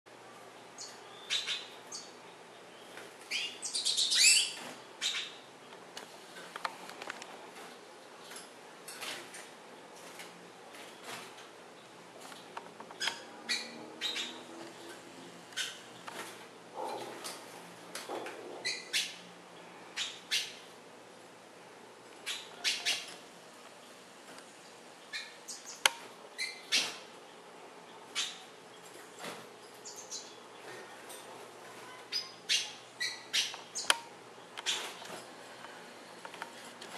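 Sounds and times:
finches chirping and twittering: 0.8s - 5.5s, 12.9s - 17.1s, 18.6s - 20.7s, 22.2s - 23.2s, 24.6s - 31.1s, 31.7s - 35.2s.

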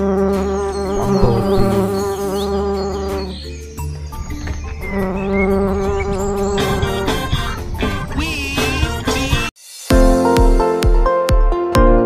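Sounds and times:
bumblebee buzzing: 0.0s - 3.4s, 4.8s - 9.5s.

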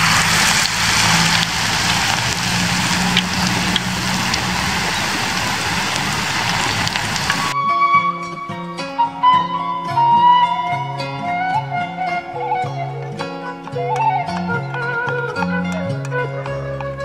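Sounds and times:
hot oil sizzling: 0.0s - 7.6s
spitting oil pops: 0.0s - 7.6s.

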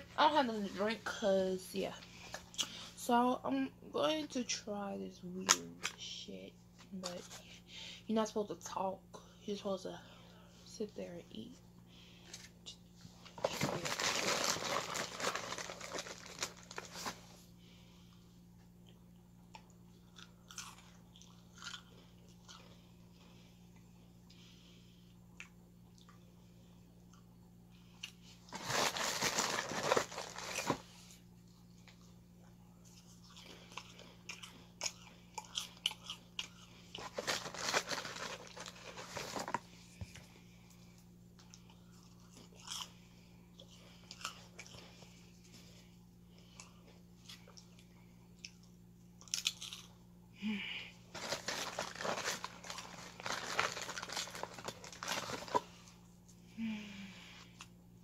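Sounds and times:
low steady hum: 0.0s - 58.0s
crunchy snacks crunching: 13.4s - 17.1s, 19.6s - 22.9s, 28.0s - 30.8s, 32.9s - 39.6s, 41.4s - 43.0s, 48.4s - 50.0s, 51.1s - 55.9s.

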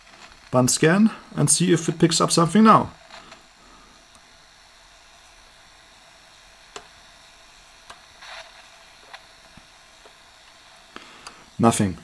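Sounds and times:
sharp clicks and crackle: 0.0s - 1.0s, 2.9s - 4.4s, 6.6s - 7.1s, 7.7s - 11.5s
radio static hiss: 0.0s - 12.0s.

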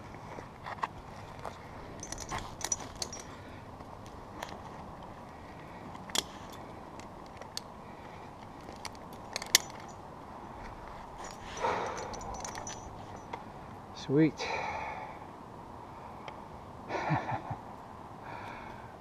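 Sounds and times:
metallic clicks of climbing hardware: 0.6s - 3.4s, 5.7s - 7.8s, 8.4s - 10.0s, 10.6s - 13.4s.

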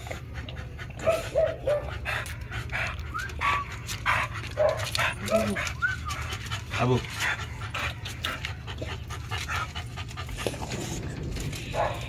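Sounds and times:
dogs sniffing and panting: 0.0s - 12.0s
dog whimpers: 3.1s - 9.2s.

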